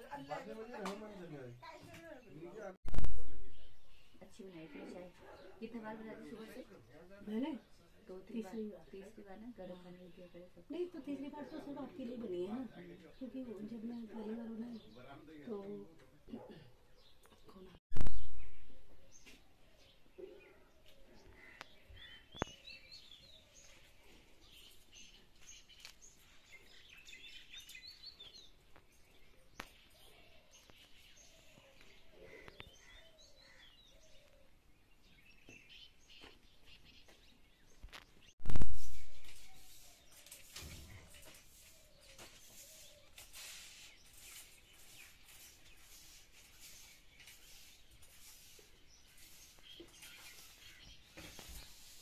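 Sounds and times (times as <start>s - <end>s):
birds chirping faintly: 0.0s - 52.0s
broom sweeping concrete floor: 38.5s - 52.0s.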